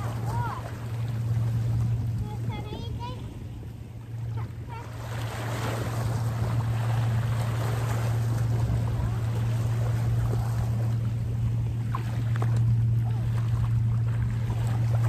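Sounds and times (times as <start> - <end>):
sea waves washing over rocks: 0.0 - 0.8
steady low hum: 0.0 - 15.0.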